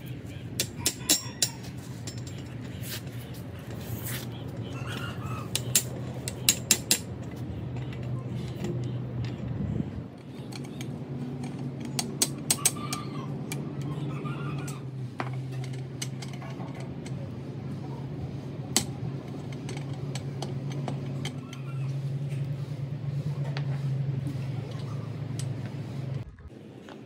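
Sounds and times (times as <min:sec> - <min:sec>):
low machine hum: 0:00.0 - 0:27.0.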